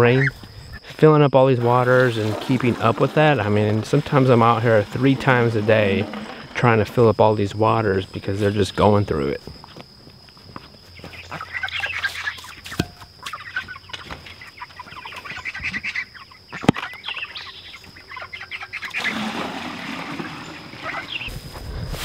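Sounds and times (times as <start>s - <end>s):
chickens peeping and clucking: 0.0s - 6.7s, 10.6s - 21.4s
sharp knocks: 12.8s - 13.1s
water poured from a bucket: 19.0s - 21.2s.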